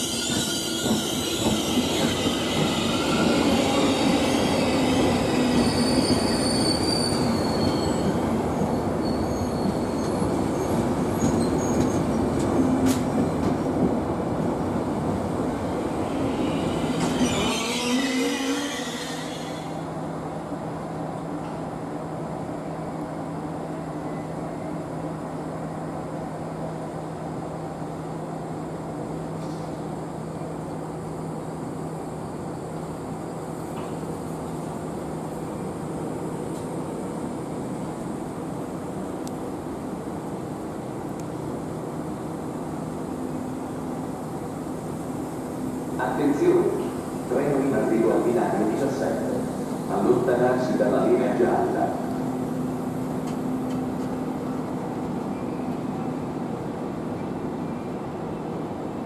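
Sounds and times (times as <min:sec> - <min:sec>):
flange squeal: 0:00.0 - 0:08.0, 0:16.2 - 0:19.7
standing train electric hum: 0:19.8 - 0:59.0.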